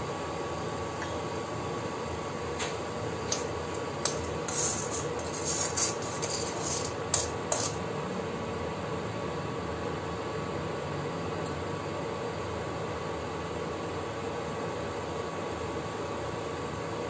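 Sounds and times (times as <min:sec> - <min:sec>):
induction cooktop hum: 0:00.0 - 0:17.0
spoon scraping an iron pan: 0:03.3 - 0:07.8.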